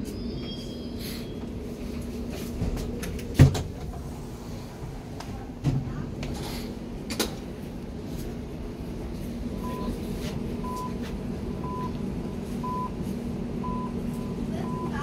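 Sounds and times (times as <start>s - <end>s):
train low hum: 0.0s - 15.0s
door warning beeps: 9.6s - 10.0s, 10.6s - 11.0s, 11.6s - 12.0s, 12.6s - 13.0s, 13.6s - 15.0s.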